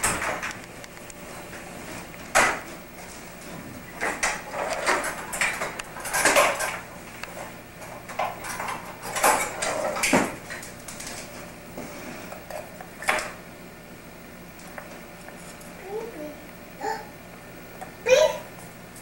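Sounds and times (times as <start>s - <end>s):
kitchen utensils clattering: 3.9s - 6.9s, 7.9s - 11.3s.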